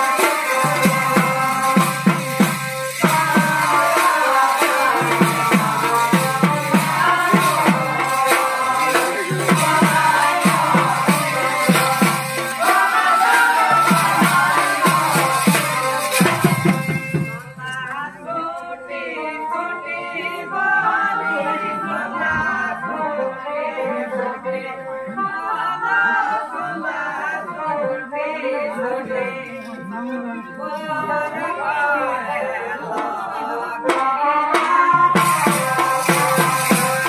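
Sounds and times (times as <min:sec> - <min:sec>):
drum and cymbal strikes: 0:00.0 - 0:17.8, 0:33.9 - 0:37.0
person singing: 0:00.0 - 0:37.0.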